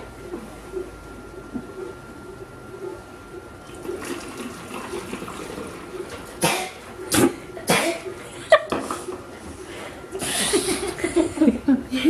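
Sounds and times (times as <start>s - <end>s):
liquid pouring through funnel: 3.4s - 6.3s.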